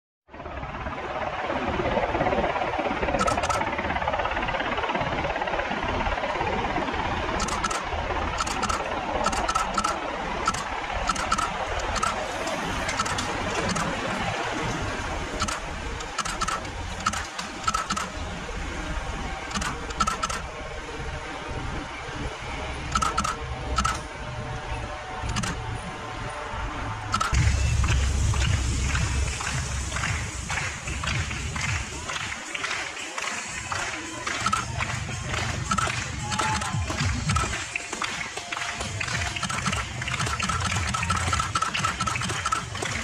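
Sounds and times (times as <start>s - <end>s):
bicycle freewheel clicks: 3.2s - 3.7s, 7.3s - 12.2s, 12.8s - 14.0s, 15.4s - 18.2s, 19.5s - 20.4s, 22.9s - 24.0s, 27.1s - 30.1s, 34.2s - 37.6s, 39.0s - 43.0s.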